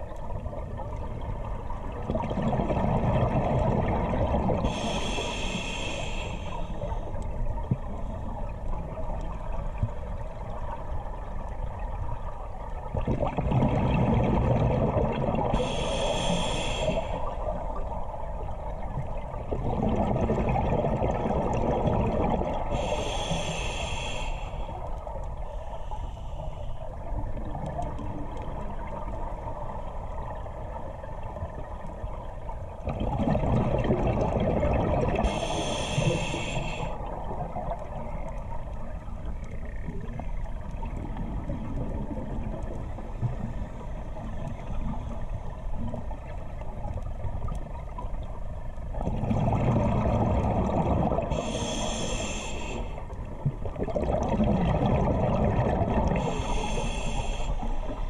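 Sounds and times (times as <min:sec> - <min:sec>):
exhaled bubbles rumbling: 0:00.0 - 0:04.9, 0:07.5 - 0:15.8, 0:17.2 - 0:22.9, 0:27.0 - 0:36.3, 0:37.0 - 0:51.8, 0:53.0 - 0:56.8
steady underwater hiss: 0:00.0 - 0:58.0
regulator inhalation whistling hiss: 0:04.7 - 0:06.7, 0:15.6 - 0:17.2, 0:22.8 - 0:24.7, 0:35.3 - 0:36.9, 0:51.4 - 0:53.0, 0:56.2 - 0:58.0.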